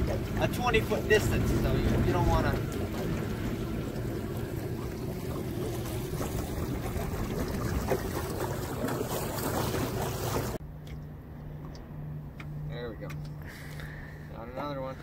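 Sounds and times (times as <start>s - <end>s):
wind and water rushing: 0.0s - 10.6s
outboard motor running: 0.0s - 15.0s.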